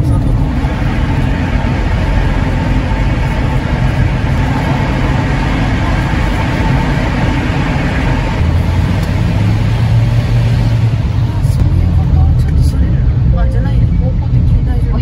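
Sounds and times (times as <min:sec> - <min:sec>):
car rumble in tunnel: 0:00.0 - 0:15.0
deep hum: 0:00.0 - 0:15.0.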